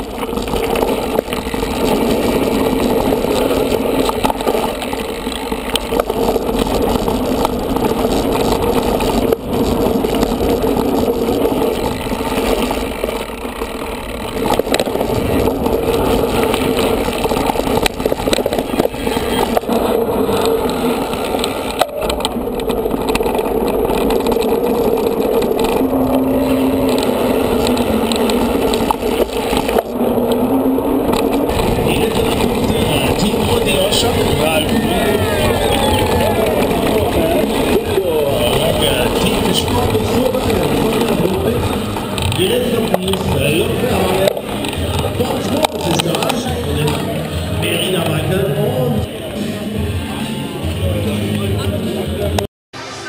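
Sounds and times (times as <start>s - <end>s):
bike rattling: 0.0s - 52.5s
bike tyres rolling: 0.0s - 53.0s
wind on microphone: 14.2s - 46.6s.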